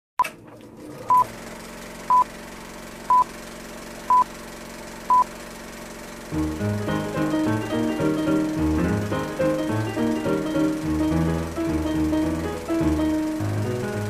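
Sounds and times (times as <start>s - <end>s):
music: 6.3s - 14.0s.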